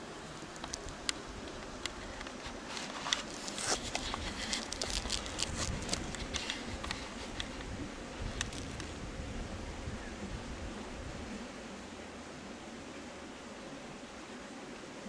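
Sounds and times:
camera handling noise: 0:02.2 - 0:07.7
footsteps on grass and twigs: 0:02.4 - 0:07.6.

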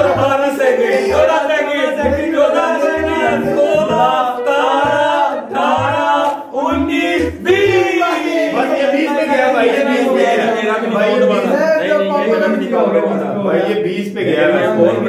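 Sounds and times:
song with singing: 0:00.0 - 0:12.7
low beat thumps: 0:02.0 - 0:08.0.

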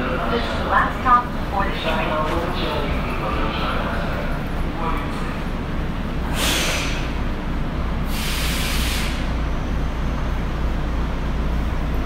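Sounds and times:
train compressed air hissing: 0:06.2 - 0:07.3, 0:08.0 - 0:09.4.

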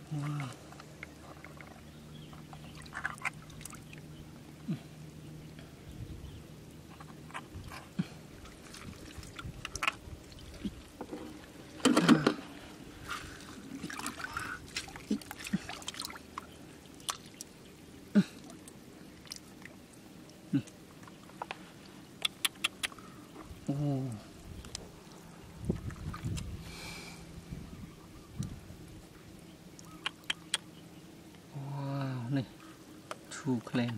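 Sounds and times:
water drips: 0:02.5 - 0:04.1, 0:13.8 - 0:17.6, 0:18.3 - 0:21.2, 0:29.3 - 0:30.6.

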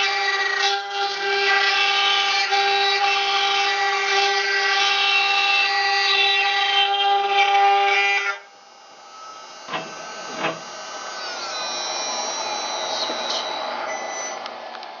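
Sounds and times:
router machine running: 0:00.0 - 0:14.9
tone sliding down in pitch: 0:09.1 - 0:14.4.

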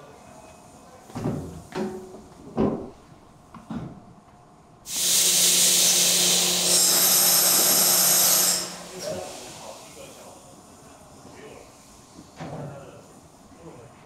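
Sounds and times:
loud steam hiss: 0:04.9 - 0:12.2.

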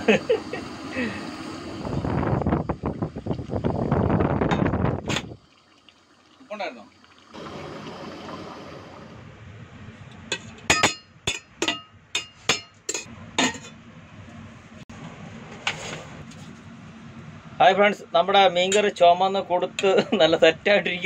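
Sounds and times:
gas stove hissing: 0:00.0 - 0:05.5, 0:06.2 - 0:09.3
spoon clinking against metal pot: 0:10.3 - 0:13.7.

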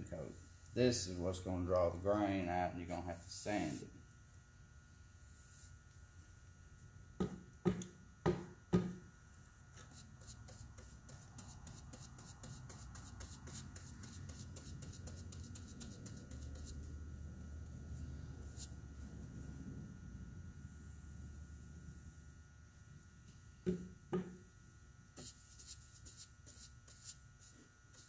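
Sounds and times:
scratchy brush strokes on wood: 0:03.1 - 0:03.9, 0:09.8 - 0:17.0.

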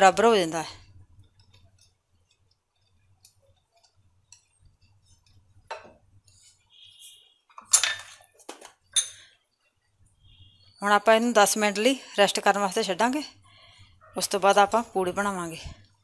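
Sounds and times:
whisk stirring batter in bowl: 0:01.0 - 0:05.6
metal clinking against glass: 0:07.6 - 0:08.2, 0:08.9 - 0:09.4.

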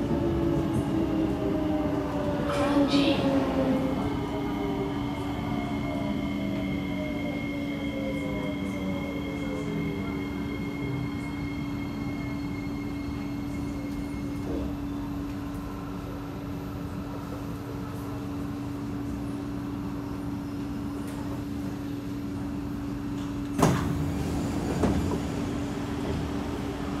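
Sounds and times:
train doors opening: 0:23.1 - 0:27.0.

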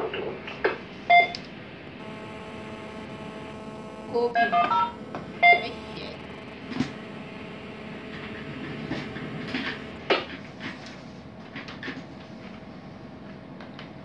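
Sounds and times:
short electronic beeps: 0:02.0 - 0:10.0
faint steady hum: 0:02.0 - 0:11.2.

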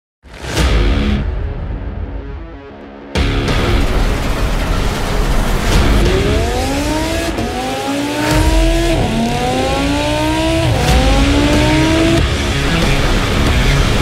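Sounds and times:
car engine accelerating: 0:03.5 - 0:14.0.

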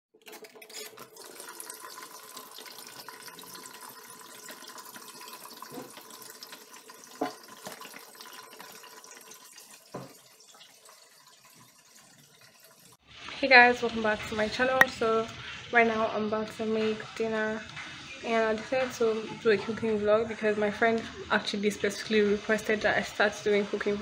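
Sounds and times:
tap water running into sink: 0:00.3 - 0:13.4.

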